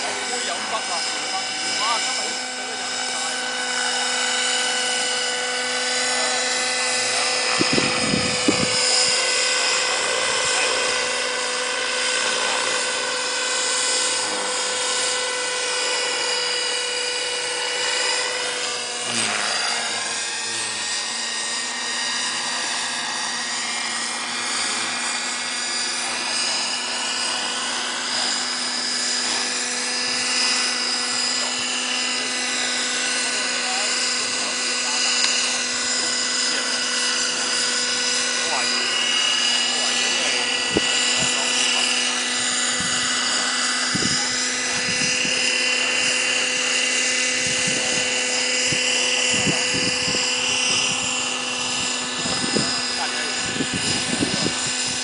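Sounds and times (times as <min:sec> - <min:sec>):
model aircraft motors whining: 0:00.0 - 0:55.0
wind bumps on microphone: 0:07.5 - 0:08.9, 0:43.9 - 0:44.2, 0:49.3 - 0:51.1, 0:53.4 - 0:55.0.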